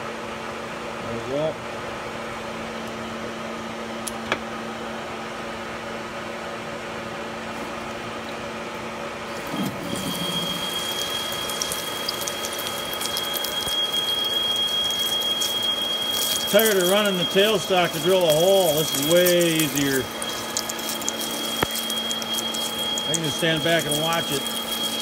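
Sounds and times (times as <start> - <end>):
crackling chips: 9.3 - 25.0
drill whine: 9.3 - 25.0
lathe humming: 9.3 - 25.0.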